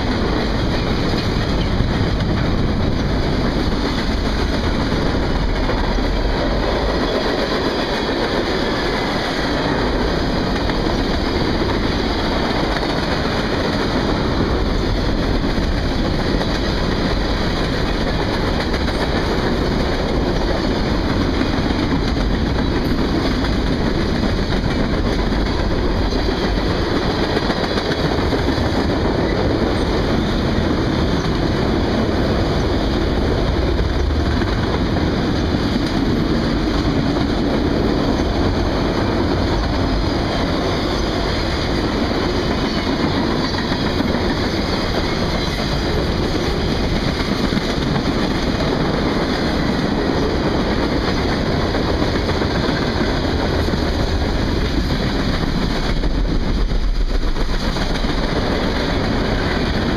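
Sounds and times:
train wheels rolling on rails: 0.0 - 59.9.

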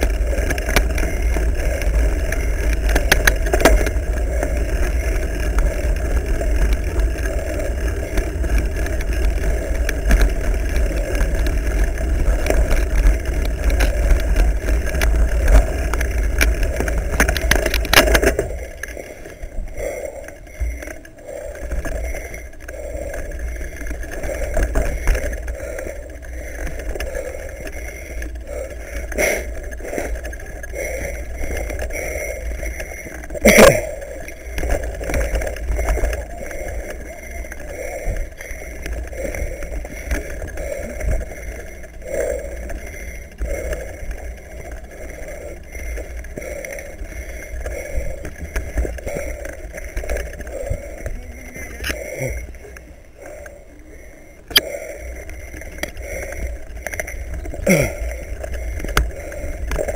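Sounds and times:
mountain bike rumbling over trail: 0.0 - 53.8, 54.4 - 59.9.

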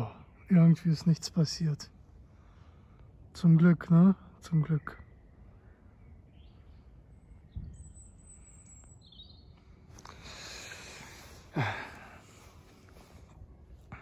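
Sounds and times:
outdoor background noise: 0.0 - 14.0
high bird chirps: 4.8 - 9.8.

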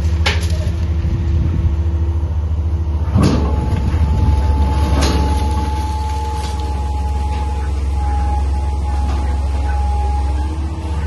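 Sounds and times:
excavator diesel engine droning: 0.0 - 11.0
thin steady whine: 0.0 - 11.0
demolition debris crash: 2.9 - 11.0.

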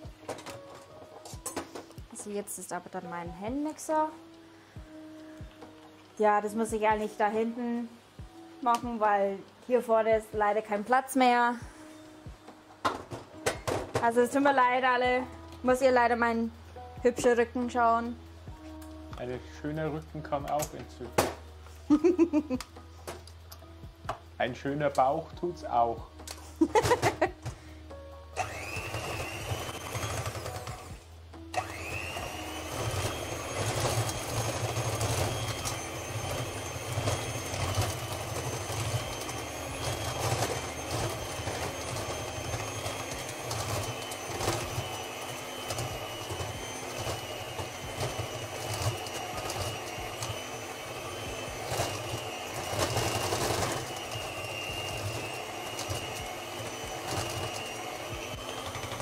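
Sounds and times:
electric hand mixer whining: 11.7 - 23.2, 24.6 - 59.0.

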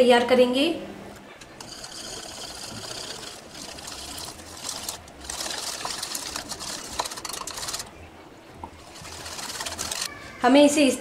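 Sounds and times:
whisk beating batter in bowl: 1.6 - 7.9, 8.8 - 10.1.

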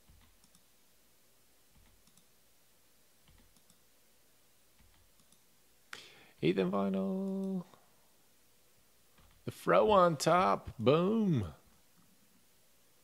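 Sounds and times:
faint computer mouse clicks: 0.1 - 0.7, 1.8 - 2.3, 3.3 - 3.8, 4.8 - 5.5.

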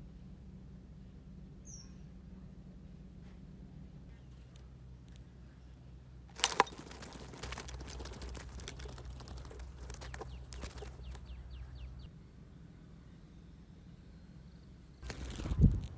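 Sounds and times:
short high falling bird calls: 1.6 - 2.1
bird fluttering against sticks: 6.3 - 11.4, 15.0 - 15.9.

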